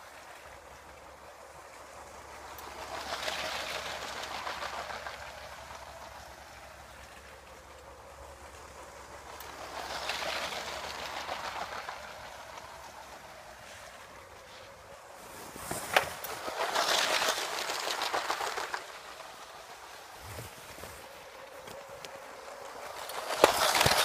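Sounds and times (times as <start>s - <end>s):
toy train clattering on track: 0.0s - 24.0s.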